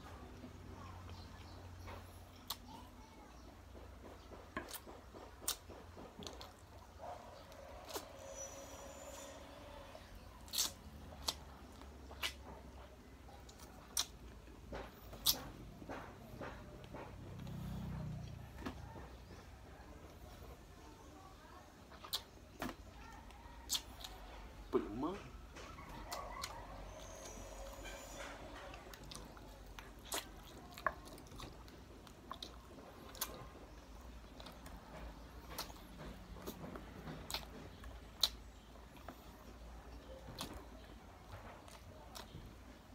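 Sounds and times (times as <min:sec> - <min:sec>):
wet lip smacks and chewing: 0:02.0 - 0:02.7, 0:04.6 - 0:06.8, 0:10.4 - 0:19.4, 0:21.9 - 0:24.2, 0:25.6 - 0:42.4
fried chicken skin crunching: 0:10.4 - 0:12.4.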